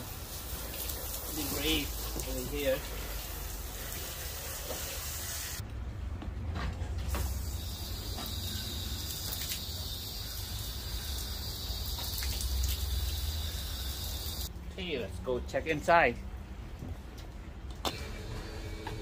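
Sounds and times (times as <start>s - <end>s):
hose spraying water on a van: 0.0s - 5.6s, 7.0s - 14.5s.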